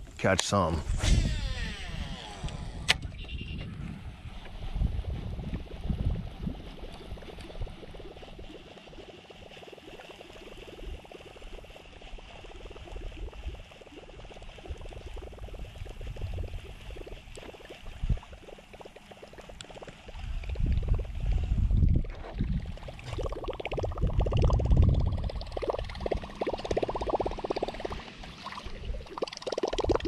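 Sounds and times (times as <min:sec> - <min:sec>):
wind buffeting microphone: 0:00.7 - 0:08.7, 0:10.8 - 0:18.6, 0:20.1 - 0:29.2.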